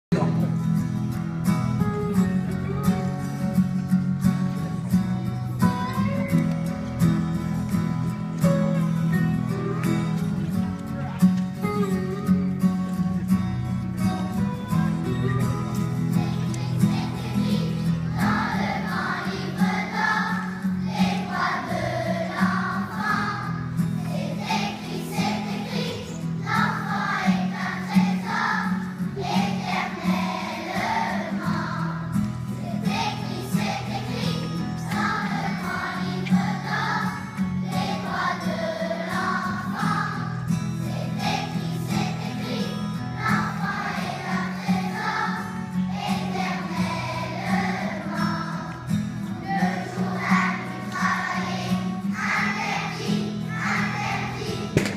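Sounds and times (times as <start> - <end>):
low musical accompaniment: 0.1 - 54.9
children's choir singing: 14.3 - 54.9.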